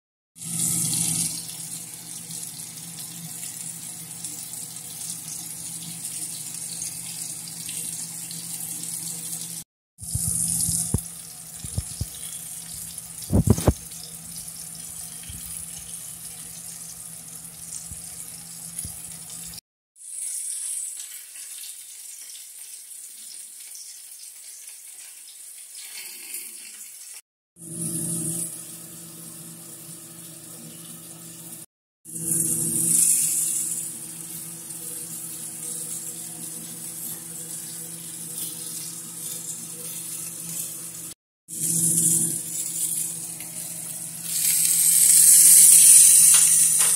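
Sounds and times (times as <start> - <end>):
vegetables sizzling in a frying pan: 0.4 - 28.4, 32.1 - 46.9.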